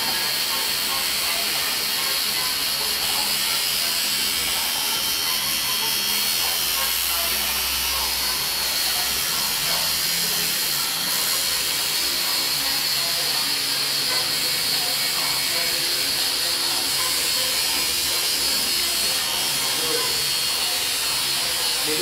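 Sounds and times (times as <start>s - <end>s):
tattoo machine buzzing: 0.0s - 22.0s.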